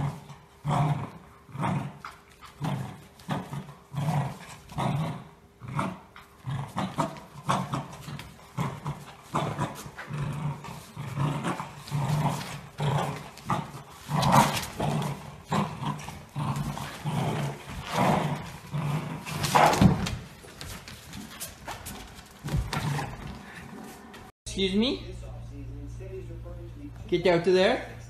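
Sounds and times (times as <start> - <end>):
dogs growling: 0.0 - 20.2.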